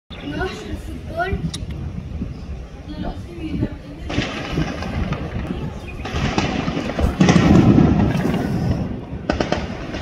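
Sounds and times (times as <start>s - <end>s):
gunshots cracking: 4.1s - 10.0s.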